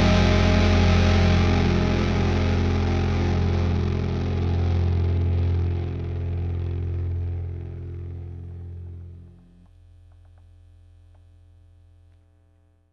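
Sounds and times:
backing track: 0.0 - 9.2
electric bass note ringing: 0.0 - 9.5
faint low hum: 0.0 - 12.9.

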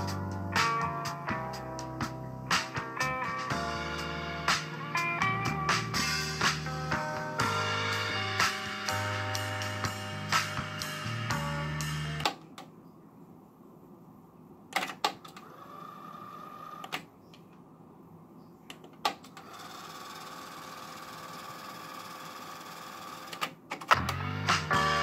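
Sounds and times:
music playback: 0.0 - 12.6, 23.9 - 25.0.

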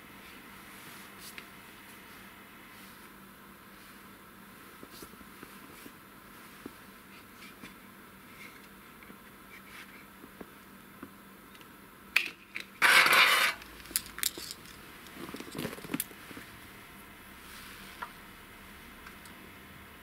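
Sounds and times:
metal scraping rattle: 12.8 - 14.8
metallic clinks and clatter: 13.8 - 16.0.

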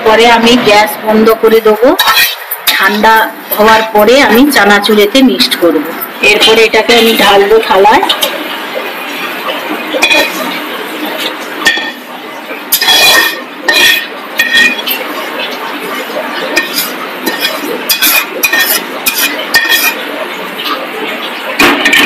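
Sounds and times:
metal spatula scraping a wok: 2.0 - 3.0, 10.0 - 10.5, 12.7 - 15.2, 16.6 - 20.0.

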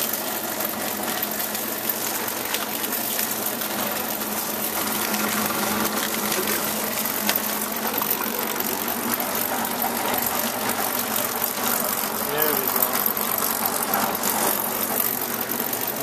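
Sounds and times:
sugarcane roller press humming: 0.0 - 16.0
small crackles of crushed cane: 1.5 - 5.2.

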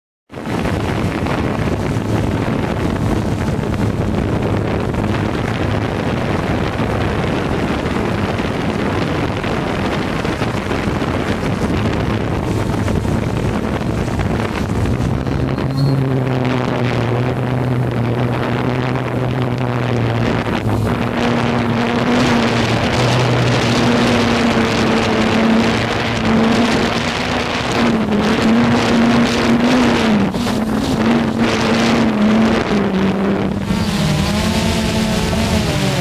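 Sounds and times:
rushing propeller wash: 0.3 - 36.0
drone motors humming: 10.9 - 36.0.

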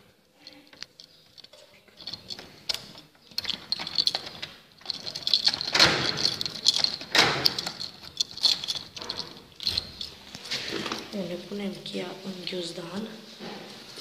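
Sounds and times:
keys jingling: 0.0 - 11.3
lock and handle clicking: 0.6 - 11.1.

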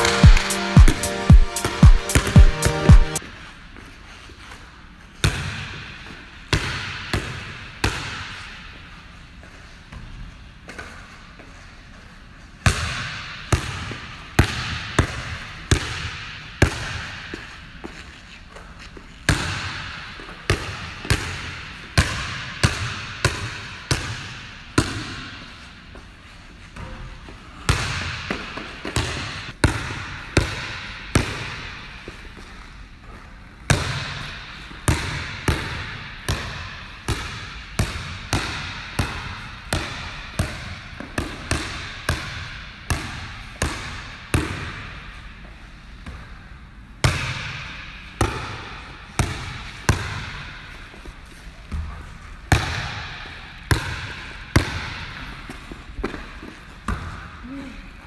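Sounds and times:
basketball bouncing on wooden floor: 0.2 - 3.2.

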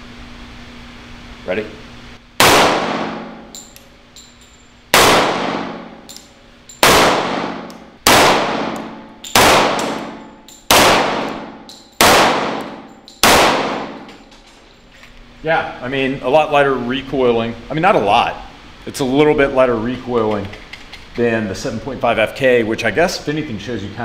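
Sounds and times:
pistol shots echoing: 2.4 - 3.6, 4.9 - 6.0, 6.8 - 14.1.

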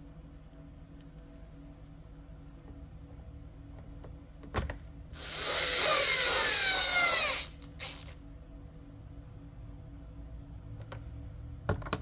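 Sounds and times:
power drill motor whine: 5.2 - 8.2.

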